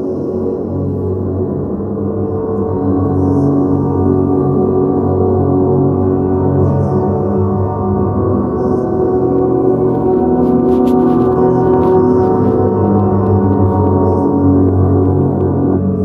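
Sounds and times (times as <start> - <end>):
ambient drone music: 0.0 - 16.0.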